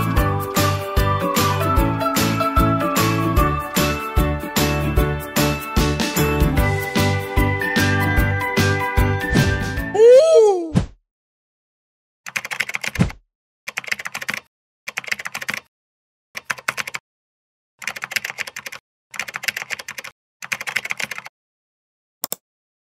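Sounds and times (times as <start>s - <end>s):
keyboard key clicks: 22.2s - 22.4s.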